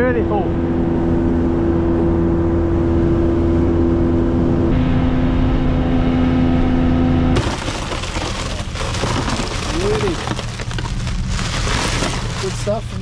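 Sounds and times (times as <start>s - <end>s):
outboard motor droning: 0.2s - 7.3s.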